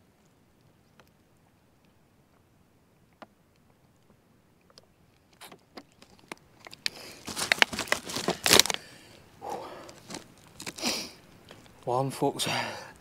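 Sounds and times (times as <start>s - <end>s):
close rustling and crinkling: 3.6s - 13.0s.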